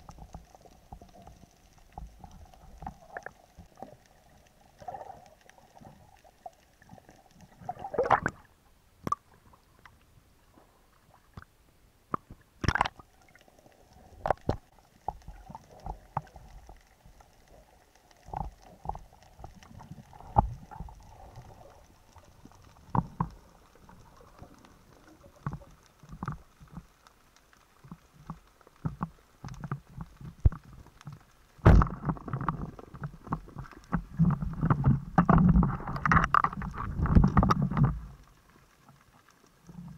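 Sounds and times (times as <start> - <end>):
underwater knocks and clicks: 0.0 - 10.0, 12.1 - 13.1, 14.2 - 27.0, 27.6 - 39.9
low rumbling water noise: 0.0 - 39.9.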